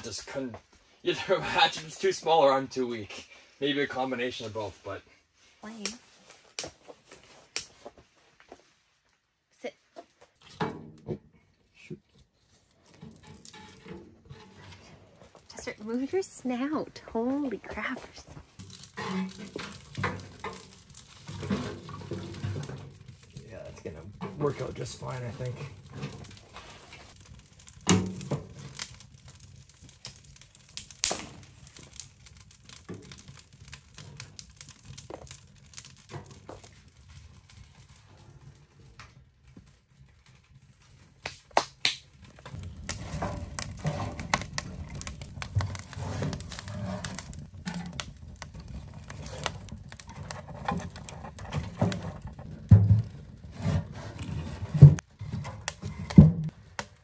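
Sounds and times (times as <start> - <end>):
small clicks and crackles: 12.2 - 14.6, 17.7 - 53.2.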